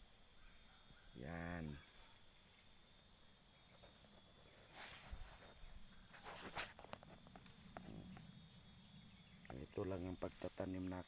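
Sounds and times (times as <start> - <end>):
insects chirring: 0.0 - 11.0
footsteps crunching through dry grass: 4.5 - 8.0.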